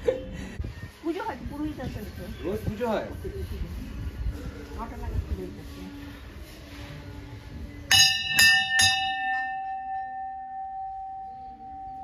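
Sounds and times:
temple bell ringing: 7.9 - 12.0.

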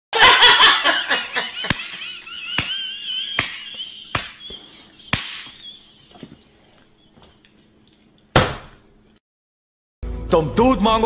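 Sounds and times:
sharp smacks of blows: 5.1 - 5.6.

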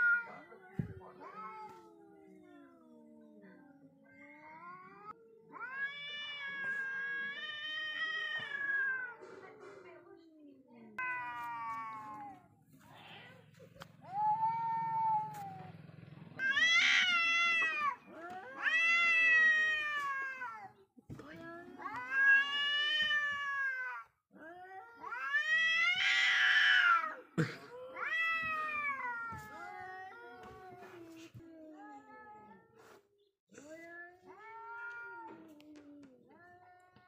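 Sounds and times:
cats yowling: 0.0 - 9.2, 14.0 - 15.8, 16.4 - 20.8, 21.8 - 31.0.

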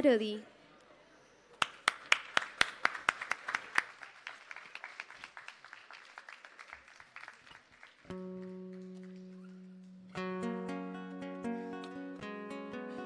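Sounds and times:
audience applauding: 1.6 - 9.8.

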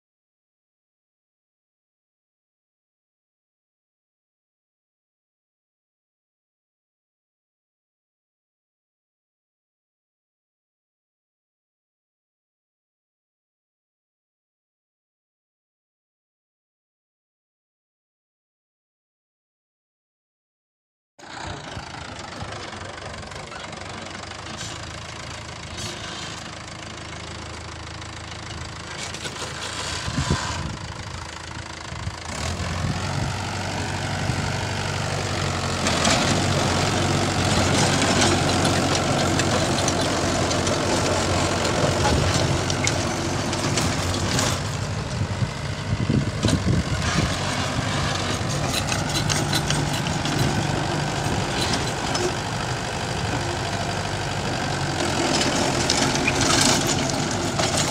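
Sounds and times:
tractor engine running: 21.2 - 57.9
rotavator blades churning soil: 29.0 - 30.8, 32.3 - 57.9.

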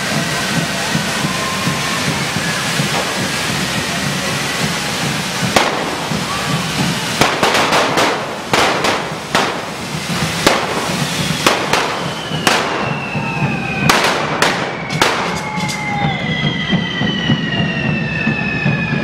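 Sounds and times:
firecracker bangs: 0.0 - 19.0
fireworks hissing: 0.0 - 19.0
whistling tones falling in pitch: 0.1 - 7.6, 10.6 - 19.0.

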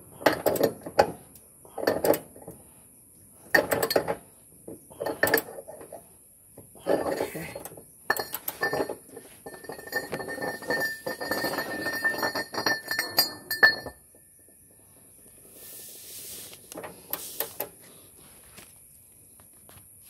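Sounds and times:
metal clinks: 6.8 - 14.6.

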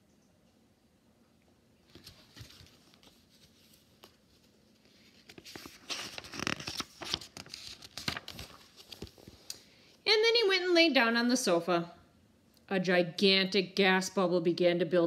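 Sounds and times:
paper pages rustling: 1.9 - 9.6.

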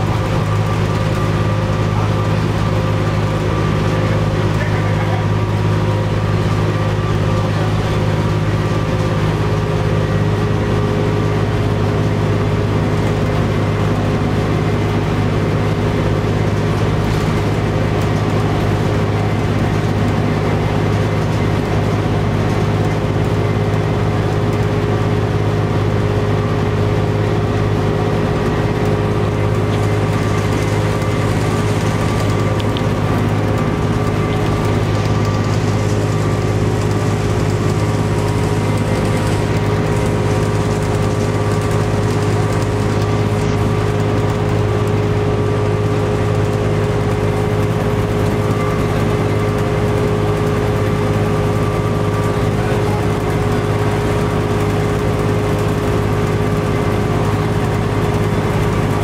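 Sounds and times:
bus engine running: 0.0 - 59.0.

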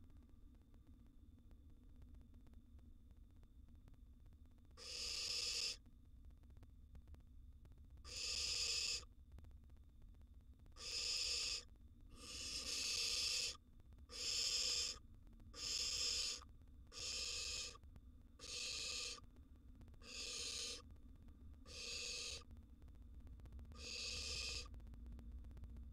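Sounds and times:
owl nestlings rasping begging calls: 4.8 - 5.8, 8.1 - 9.0, 10.8 - 15.0, 15.6 - 17.8, 18.4 - 19.2, 20.0 - 20.8, 21.7 - 22.5, 23.8 - 24.7.

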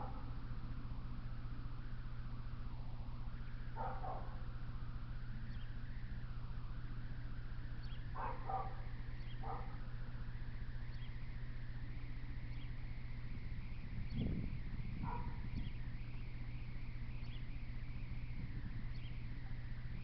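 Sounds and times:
steady low hum: 0.0 - 20.0
distant animal calls: 7.8 - 9.9.

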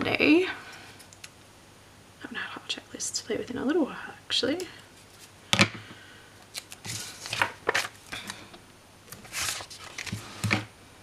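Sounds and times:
paper rustling: 6.5 - 8.4, 9.1 - 10.6.

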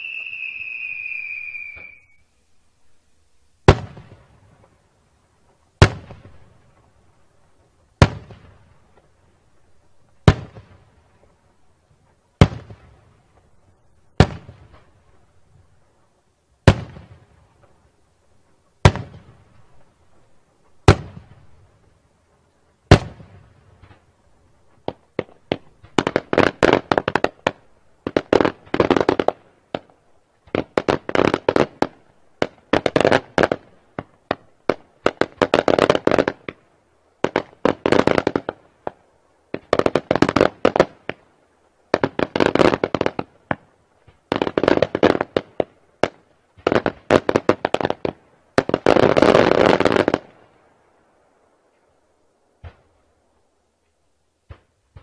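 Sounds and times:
firework shells exploding: 0.0 - 2.2.

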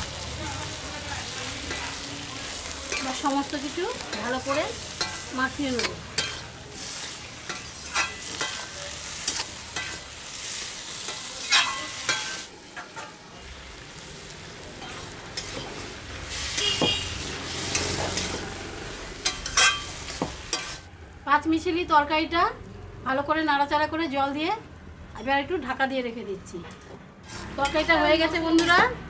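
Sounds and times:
vegetables frying in oil: 0.0 - 20.9
spatula scraping metal pan: 27.2 - 28.8.

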